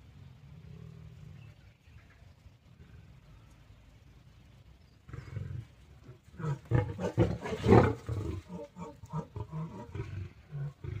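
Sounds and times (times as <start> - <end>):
lion roaring and grunting: 5.1 - 11.0.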